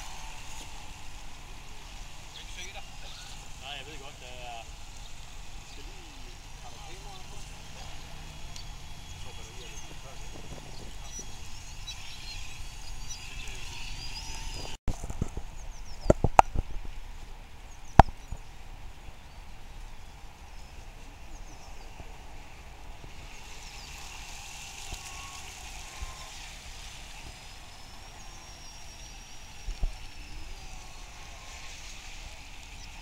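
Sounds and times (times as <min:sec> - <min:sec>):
faint high chirps and whistles: 0:08.6 - 0:14.8.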